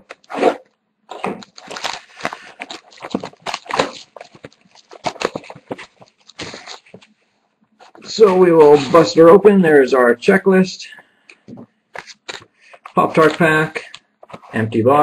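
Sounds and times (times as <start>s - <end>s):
plastic wrap crinkling: 0.0s - 7.2s, 11.4s - 14.6s.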